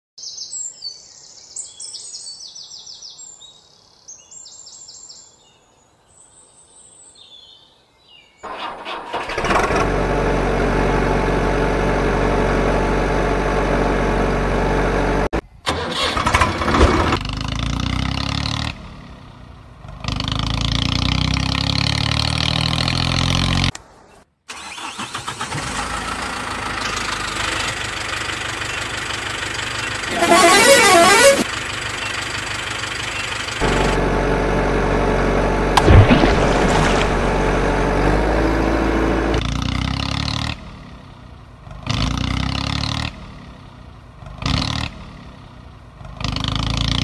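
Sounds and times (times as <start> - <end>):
vehicle engine starting and running: 8.4 - 47.0.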